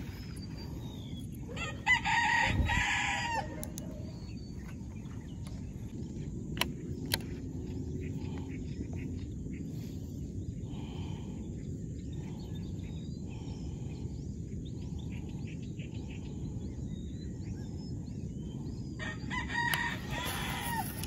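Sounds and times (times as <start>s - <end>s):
low outdoor rumble: 0.0s - 21.0s
small birds chirping: 0.0s - 21.0s
rooster crowing: 1.5s - 4.0s, 19.0s - 21.0s.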